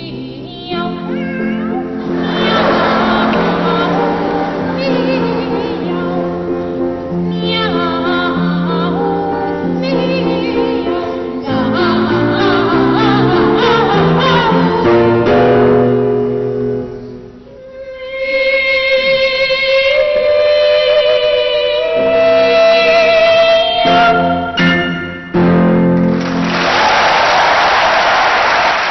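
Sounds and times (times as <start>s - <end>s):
piano accompaniment: 0.0s - 18.0s, 21.0s - 28.3s
boys' voices singing: 2.0s - 14.9s.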